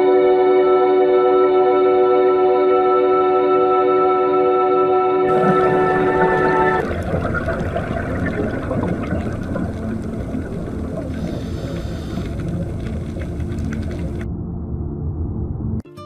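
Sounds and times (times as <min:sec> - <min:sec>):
faint clicks and crackles: 0:05.3 - 0:14.3
underwater rumble of moving water: 0:05.3 - 0:15.8.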